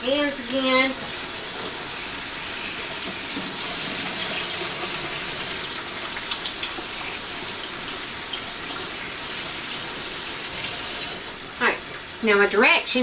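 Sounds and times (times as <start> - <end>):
faucet running: 0.0 - 13.0
hands washing under water: 1.0 - 11.4.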